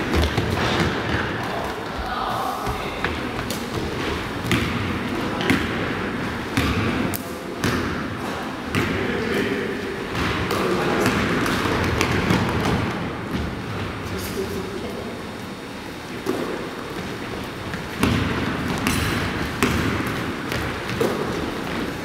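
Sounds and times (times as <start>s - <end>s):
basketball bouncing on wooden floor: 0.0s - 1.2s, 2.6s - 5.8s, 6.6s - 7.0s, 17.7s - 21.8s.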